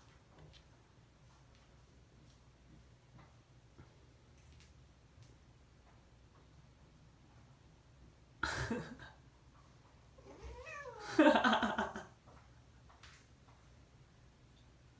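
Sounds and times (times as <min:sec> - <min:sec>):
cat meowing: 0:10.2 - 0:11.1.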